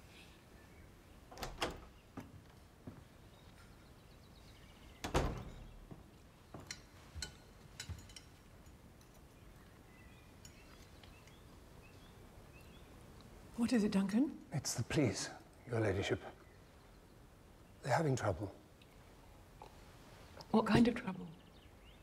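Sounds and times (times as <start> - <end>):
cutlery and tableware clinking: 6.6 - 9.4, 10.4 - 11.4.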